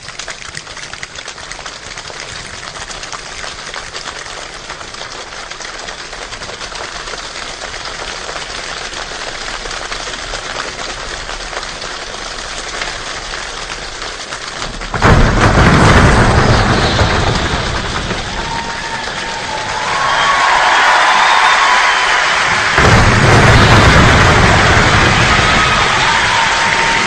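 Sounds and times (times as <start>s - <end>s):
choir body percussion rain: 0.0s - 27.0s
loud heavy crash: 14.6s - 27.0s.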